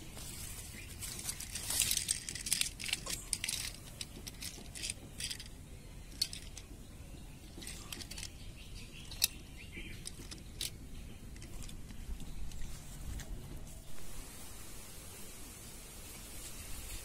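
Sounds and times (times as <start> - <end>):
leaves rustling and crackling: 0.0 - 5.5, 7.5 - 17.0
plastic toy clicks: 1.8 - 5.5, 6.1 - 6.7, 7.6 - 8.4.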